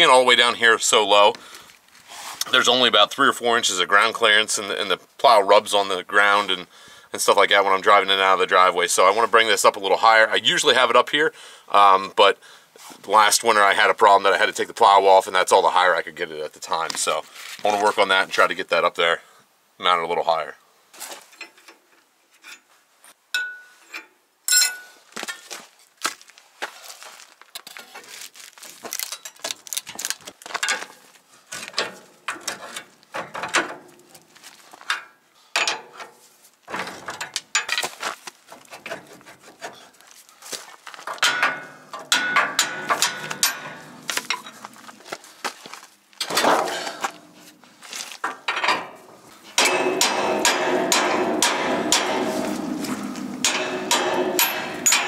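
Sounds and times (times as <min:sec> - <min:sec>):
metal clanks and scrapes: 0:21.0 - 0:22.7, 0:30.6 - 0:40.0, 0:41.0 - 0:45.1, 0:46.2 - 0:55.0.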